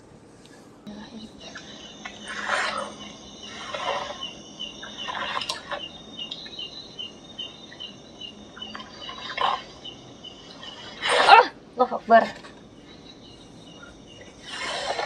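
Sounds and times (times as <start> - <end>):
short evenly spaced chirps: 0.9 - 11.0, 12.6 - 15.0
high insect drone: 0.9 - 15.0.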